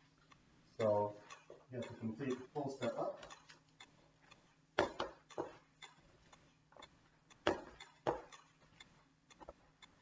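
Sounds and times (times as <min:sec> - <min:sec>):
metronome ticking: 0:00.1 - 0:10.0
footsteps on wooden step: 0:07.4 - 0:08.3.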